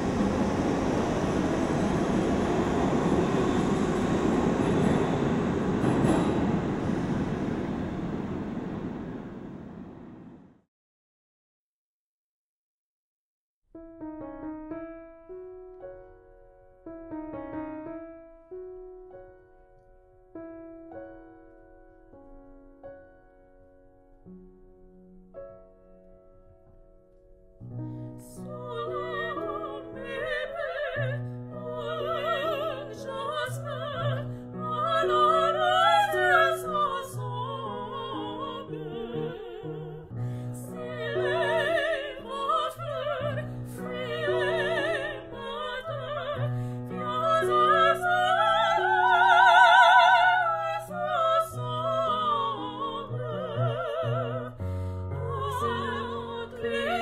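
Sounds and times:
operatic singing with vibrato: 28.2s - 57.0s.

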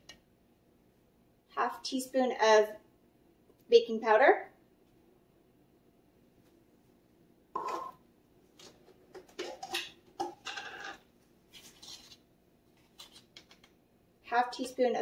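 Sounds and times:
can put on counter: 7.6s - 8.0s.

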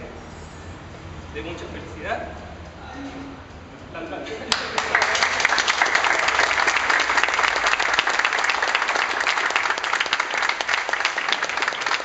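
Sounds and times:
hands clapping close by: 4.5s - 12.0s
small group applauding: 4.5s - 12.0s.

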